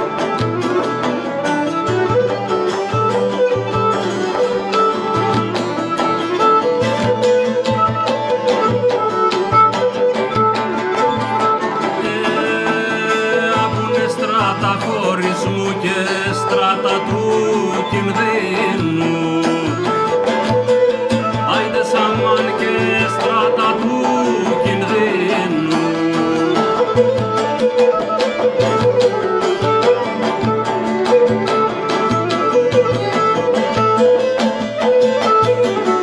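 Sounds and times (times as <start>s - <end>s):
bowed lyra: 0.0s - 36.0s
frame drum beat: 0.0s - 36.0s
plucked lute: 0.0s - 36.0s
man singing: 12.0s - 20.5s, 21.4s - 27.1s.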